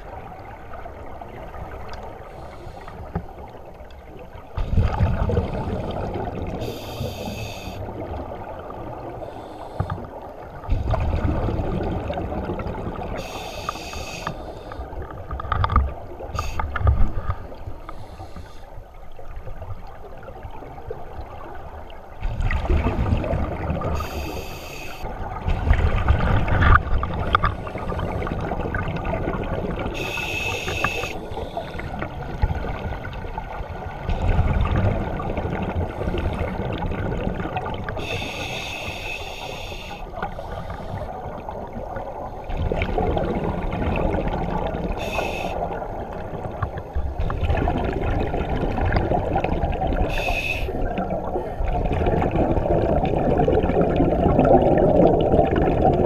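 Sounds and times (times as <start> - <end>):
diver inhaling through regulator: 6.6 - 7.8, 9.2 - 10.1, 13.2 - 14.9, 17.8 - 18.7, 24.0 - 25.1, 30.0 - 32.0, 38.0 - 41.1, 45.0 - 45.8, 50.1 - 50.8.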